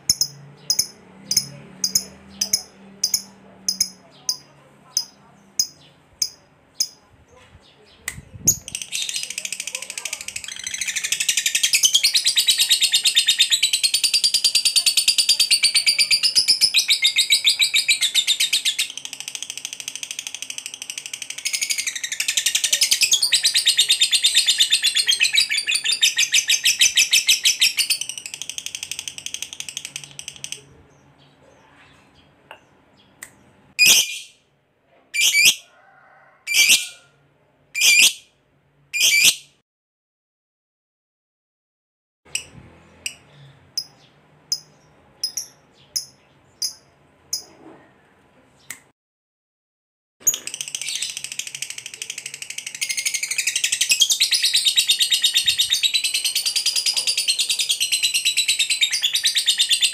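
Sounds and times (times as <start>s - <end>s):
lovebird fast chatter: 8.4s - 30.8s, 50.3s - 59.9s.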